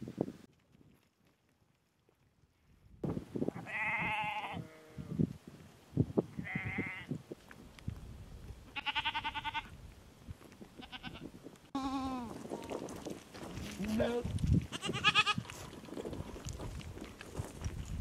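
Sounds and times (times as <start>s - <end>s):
sheep and goats bleating: 3.6s - 5.2s, 6.4s - 7.1s, 8.7s - 9.8s, 10.8s - 12.7s, 13.9s - 15.6s.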